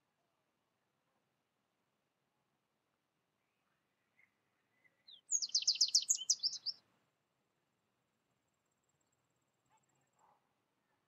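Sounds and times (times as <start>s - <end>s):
goldfinch twittering song: 5.0s - 6.8s.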